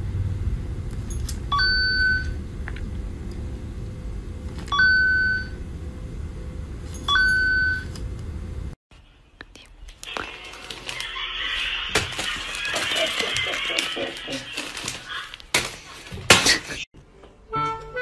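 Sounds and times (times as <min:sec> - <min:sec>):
steady low rumble: 0:00.0 - 0:08.8.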